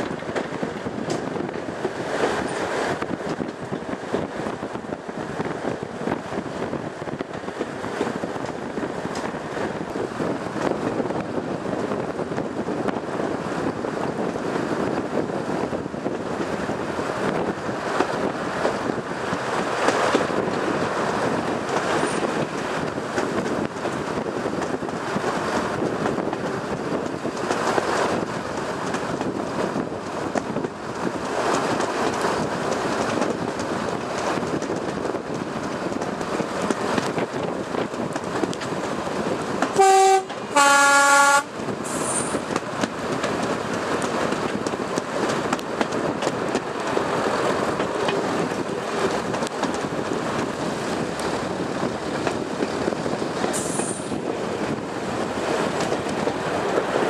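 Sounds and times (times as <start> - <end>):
diesel train rumbling and rattling: 0.0 - 57.0
two-tone train horn: 39.8 - 42.2.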